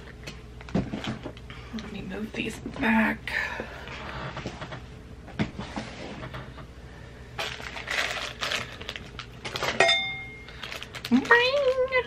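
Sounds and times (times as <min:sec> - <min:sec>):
cardboard rustling and tearing: 0:07.4 - 0:09.8.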